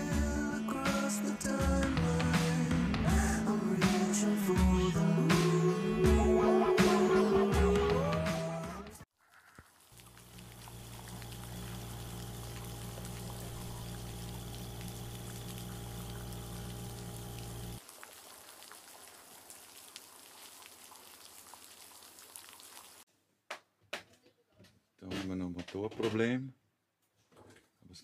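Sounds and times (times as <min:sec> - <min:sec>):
rain pattering and dripping: 0:09.6 - 0:23.0
lawn mower engine running: 0:10.2 - 0:17.8.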